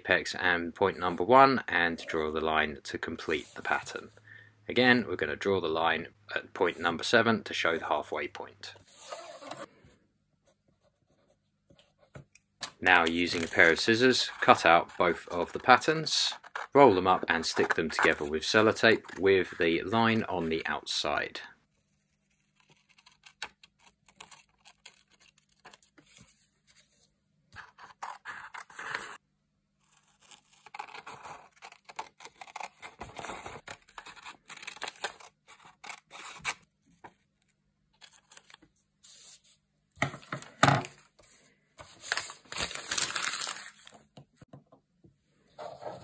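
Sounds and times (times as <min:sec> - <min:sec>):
paper rustling: 0:13.0 - 0:16.8, 0:40.2 - 0:44.2
scissors snipping paper: 0:29.9 - 0:36.6.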